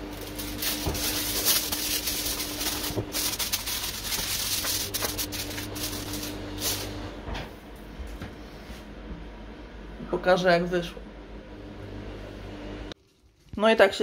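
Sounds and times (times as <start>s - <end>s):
aluminium foil crinkling: 0.0s - 6.9s, 13.0s - 14.0s.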